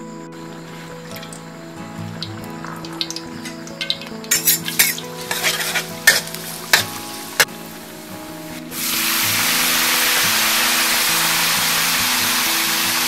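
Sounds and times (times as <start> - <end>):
loud sizzle in hot oil: 2.2 - 13.0
metal spatula scraping wok: 3.4 - 7.5.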